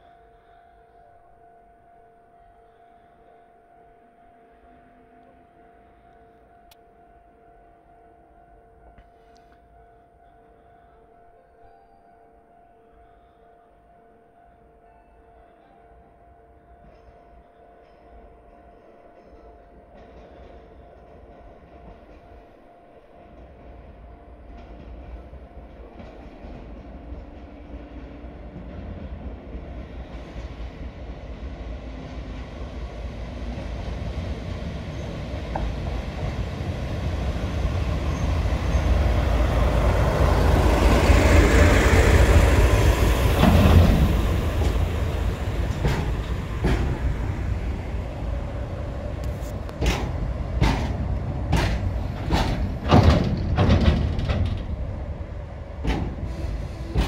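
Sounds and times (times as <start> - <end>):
locomotive passing: 20.0 - 57.0.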